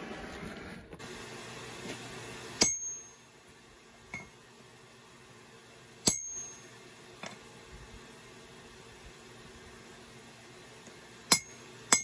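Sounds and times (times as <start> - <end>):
hammer striking metal punch: 2.6 - 3.2, 6.0 - 6.7, 11.3 - 12.0.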